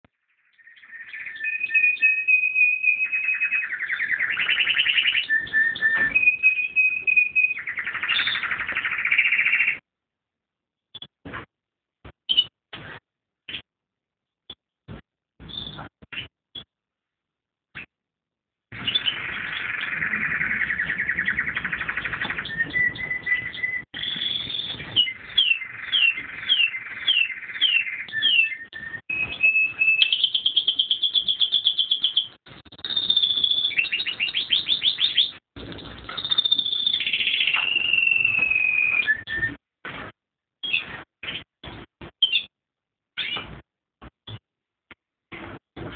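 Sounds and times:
canary singing: 0:00.3 - 0:09.8, 0:15.4 - 0:16.7, 0:18.7 - 0:39.6, 0:40.6 - 0:42.5, 0:43.2 - 0:43.6.

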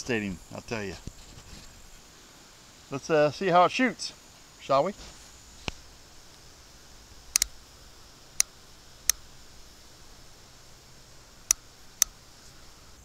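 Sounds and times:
revolver cylinder clicks: 0:07.3 - 0:07.6.

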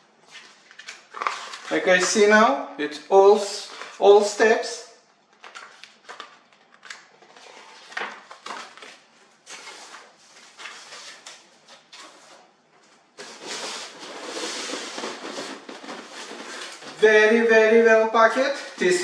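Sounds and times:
paper and cardboard rustling: 0:00.2 - 0:02.1, 0:03.6 - 0:04.3, 0:05.4 - 0:17.3
foam sheet rubbing cardboard: 0:13.2 - 0:16.9.

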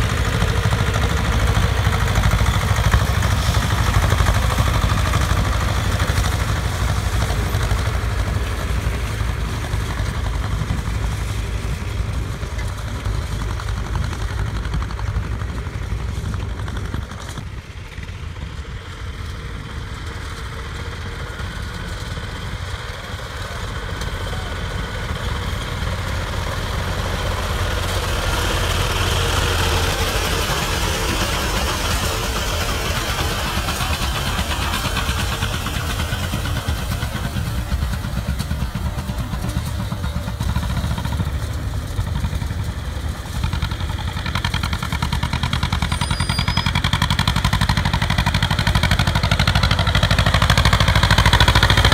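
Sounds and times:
diesel tractor running: 0:00.0 - 0:51.9
tractor approaching: 0:00.0 - 0:51.9.

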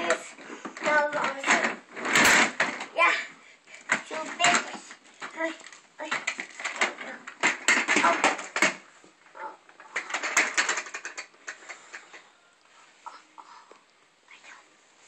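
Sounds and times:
plastic toy knocking and clattering: 0:00.0 - 0:02.9, 0:03.9 - 0:08.9, 0:09.7 - 0:12.2
toy tumbling to the floor: 0:00.0 - 0:02.9, 0:06.1 - 0:08.9, 0:09.8 - 0:12.1.

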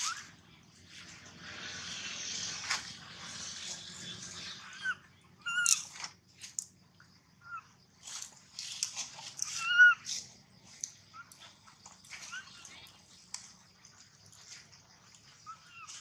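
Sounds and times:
baby monkey squeaky cries: 0:04.6 - 0:05.9, 0:09.4 - 0:10.0.

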